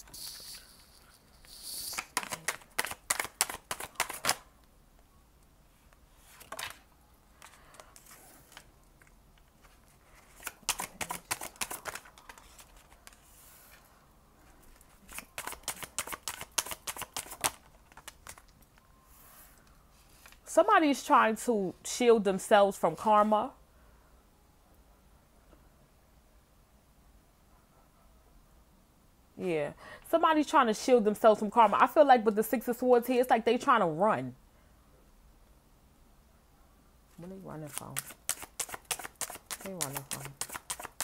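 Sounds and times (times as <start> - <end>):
cards shuffling: 0.0 - 4.4, 6.2 - 6.8, 7.4 - 13.8, 14.7 - 18.5, 37.7 - 41.0.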